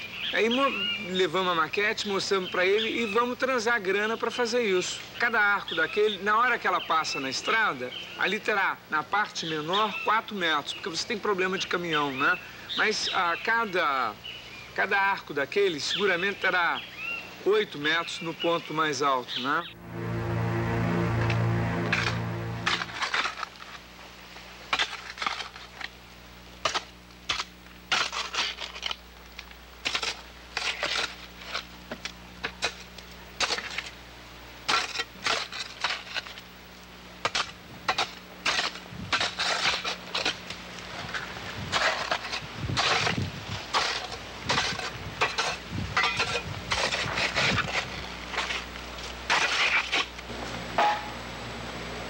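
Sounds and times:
steady low hum: 0:19.6 - 0:27.8
shovel digging into earth: 0:26.6 - 0:29.0, 0:29.8 - 0:31.7, 0:34.7 - 0:36.4, 0:37.2 - 0:40.4, 0:41.7 - 0:48.7, 0:49.3 - 0:50.2.

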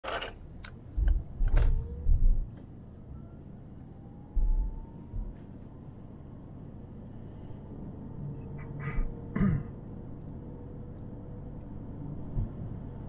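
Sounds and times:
car interior road rumble: 0:00.4 - 0:07.2, 0:10.0 - 0:13.0
faint rising tone: 0:01.0 - 0:09.2.

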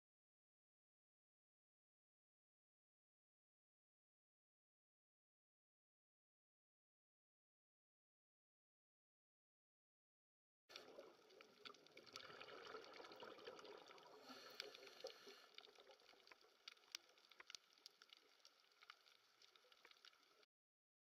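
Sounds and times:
small underwater clicks and crackles: 0:10.7 - 0:20.5
soft underwater hiss: 0:10.7 - 0:20.5.

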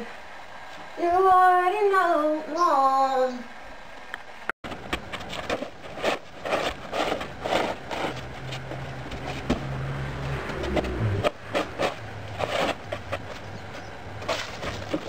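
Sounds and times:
snow shovel scraping wooden deck: 0:05.4 - 0:08.6, 0:10.6 - 0:13.3.

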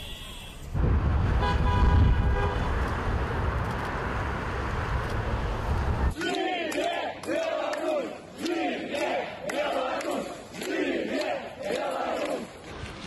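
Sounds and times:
car horn: 0:00.0 - 0:02.8
street noise with low rumble: 0:00.0 - 0:13.0.

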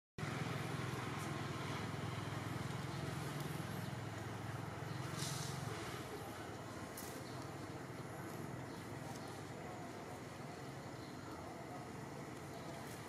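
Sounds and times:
distant motor engine rumble: 0:00.2 - 0:13.0
brief rustle: 0:05.0 - 0:05.9.

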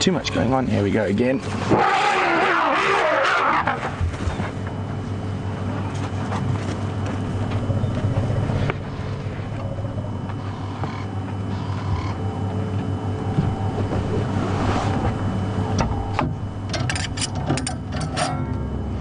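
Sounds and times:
vehicle engine idling: 0:04.3 - 0:17.2.

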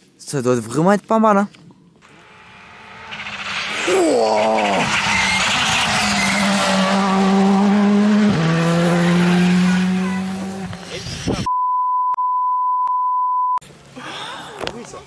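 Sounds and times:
car engine accelerating hard: 0:02.0 - 0:11.0
steady high beep: 0:11.5 - 0:13.6.

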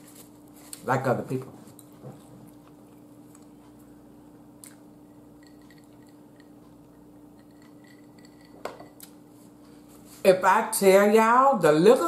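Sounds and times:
steady low hum: 0:00.0 - 0:12.0
faint chewing: 0:01.7 - 0:04.0.

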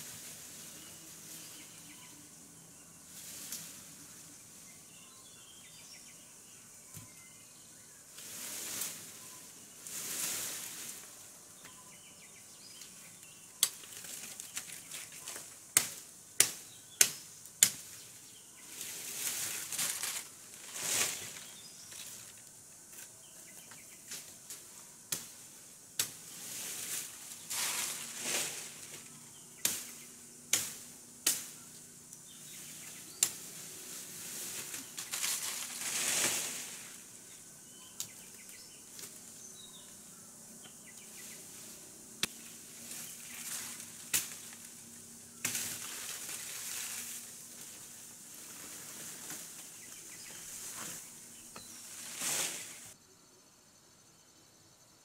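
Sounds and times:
leafy branches rustling: 0:00.0 - 0:40.0, 0:40.6 - 0:53.0
machete chopping wood: 0:15.8 - 0:17.9, 0:30.5 - 0:31.5.

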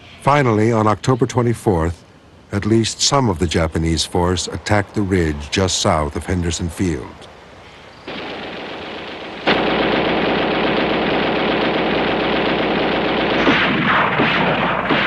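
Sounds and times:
machine-gun fire: 0:08.1 - 0:15.0.

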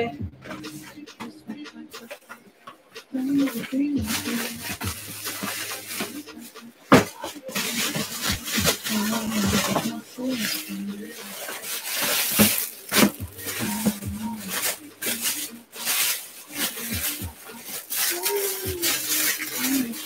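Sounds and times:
plastic wrapping crinkling: 0:02.0 - 0:20.0
low voice murmuring: 0:16.4 - 0:20.0.

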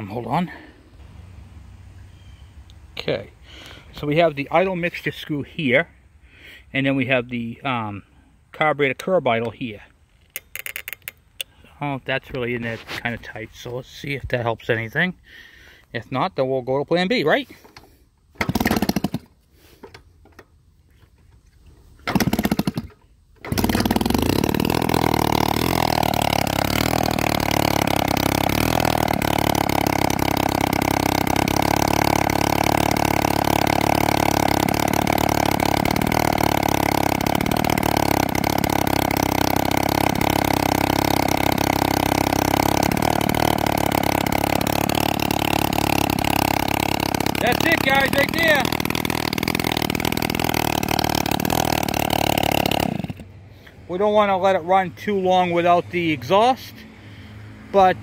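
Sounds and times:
two-stroke engine starting and running: 0:10.2 - 0:14.4, 0:16.9 - 0:21.2, 0:21.9 - 0:58.0.

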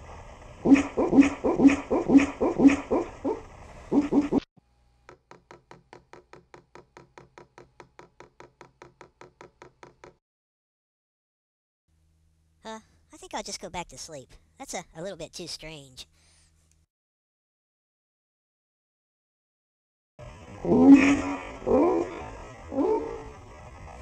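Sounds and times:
dog barking: 0:00.6 - 0:04.4.

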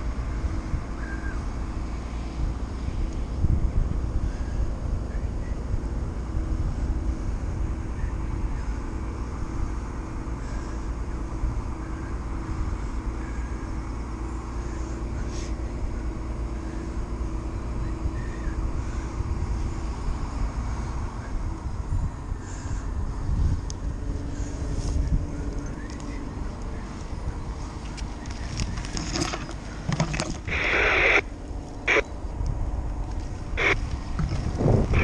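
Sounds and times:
wind on microphone: 0:00.0 - 0:13.7, 0:15.8 - 0:27.8, 0:31.9 - 0:35.0
crane low rumble: 0:00.0 - 0:35.0
faint pulsing tone: 0:00.0 - 0:35.0.

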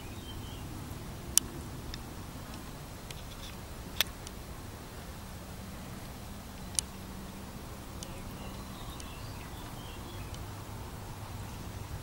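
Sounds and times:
light ticks: 0:01.3 - 0:04.4, 0:06.0 - 0:07.0, 0:07.9 - 0:10.5
faint high chirps: 0:08.0 - 0:10.5.

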